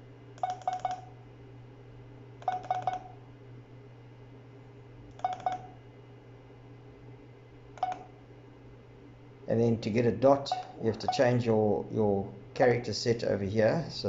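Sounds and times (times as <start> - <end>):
short electronic keypad beeps: 0.4 - 1.1, 2.4 - 3.1, 5.2 - 5.7, 7.8 - 8.1.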